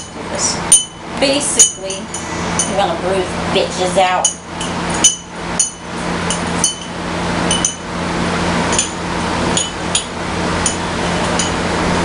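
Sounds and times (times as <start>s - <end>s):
muddler clinking in glass: 0.0s - 1.0s, 4.2s - 7.8s, 8.7s - 9.0s, 9.6s - 11.6s
steady noise: 0.0s - 12.0s.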